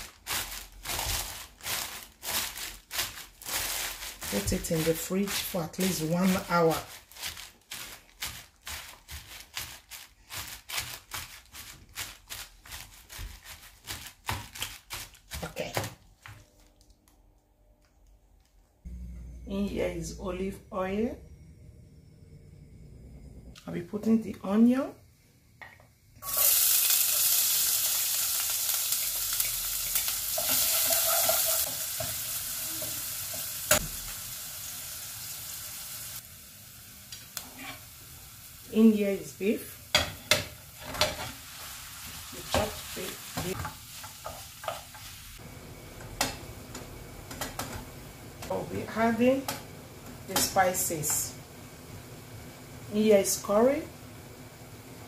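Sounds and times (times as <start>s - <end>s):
plastic bag crinkling: 0.0s - 17.1s
onions sizzling in oil: 26.2s - 55.0s.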